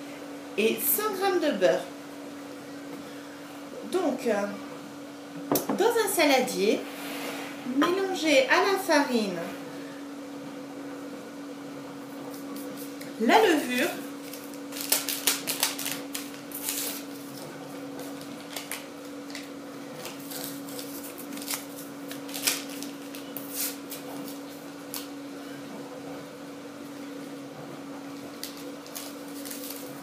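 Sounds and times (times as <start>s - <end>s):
steady low hum: 0.0s - 30.0s
paper sachet crinkling: 14.0s - 17.4s, 18.0s - 25.1s, 28.4s - 30.0s.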